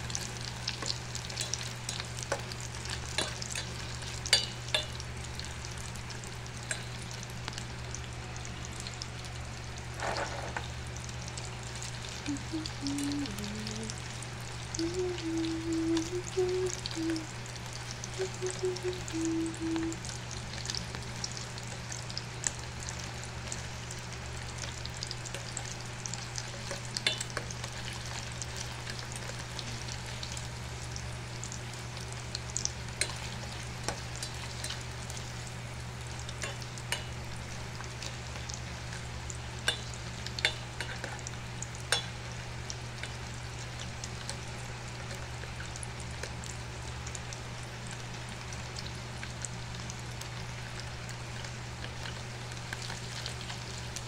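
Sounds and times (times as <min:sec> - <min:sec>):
sausage sizzling in frying pan: 0:00.0 - 0:54.0
low hum: 0:12.2 - 0:17.3, 0:18.0 - 0:20.1.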